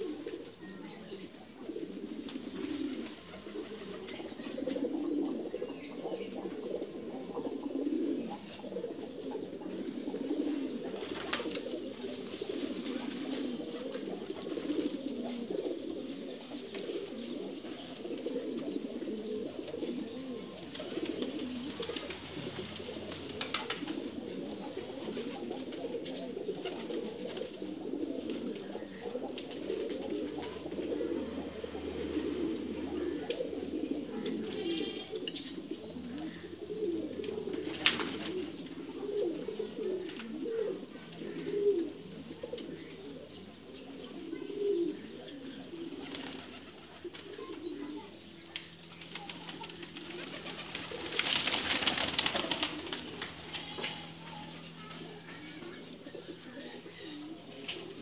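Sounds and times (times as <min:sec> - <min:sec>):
pigeons cooing: 0:00.0 - 0:58.0.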